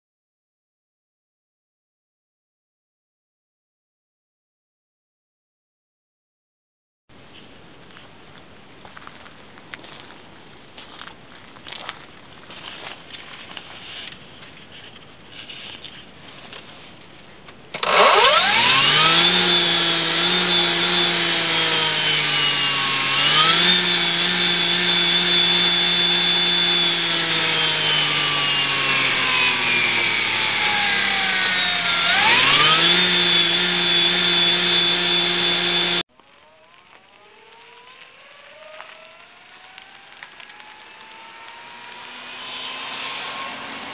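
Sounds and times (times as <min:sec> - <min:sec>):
electric motor whining: 0:17.8 - 0:43.9.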